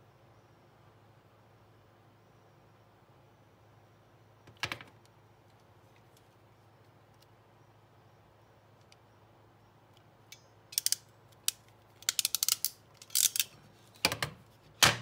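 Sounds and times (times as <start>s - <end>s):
crimping tool clicking: 10.3s - 13.5s.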